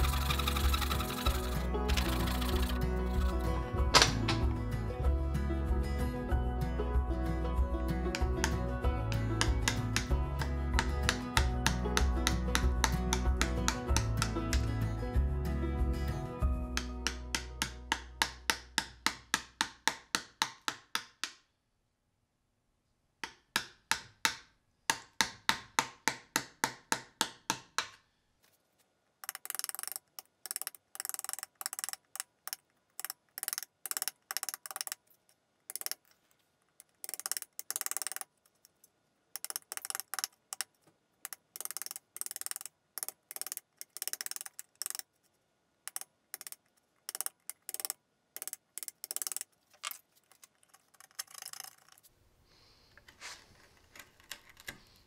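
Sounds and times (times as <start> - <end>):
chisel paring wood: 8.1 - 14.7, 16.8 - 21.4, 23.2 - 28.0, 41.3 - 45.0, 45.9 - 49.5
chisel tapping: 8.1 - 14.7, 16.7 - 21.5, 23.2 - 28.0, 29.2 - 35.0, 37.0 - 38.3, 39.4 - 45.0, 45.9 - 49.5.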